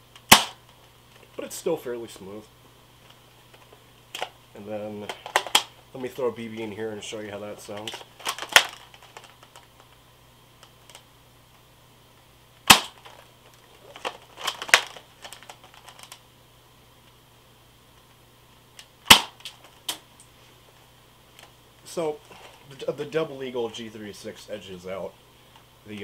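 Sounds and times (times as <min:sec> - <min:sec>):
airsoft rifle firing snaps: 0:00.2 - 0:00.6, 0:12.6 - 0:13.1, 0:19.0 - 0:20.0
airsoft rifle plastic clacks: 0:05.0 - 0:05.7, 0:07.6 - 0:10.0, 0:12.7 - 0:16.2.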